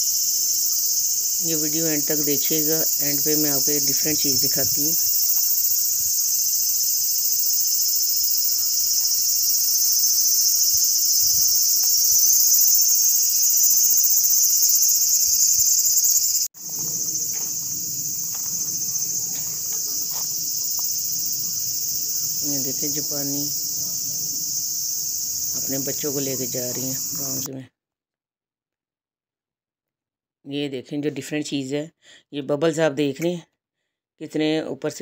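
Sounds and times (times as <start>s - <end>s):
shrill insect chorus: 0.0s - 27.5s.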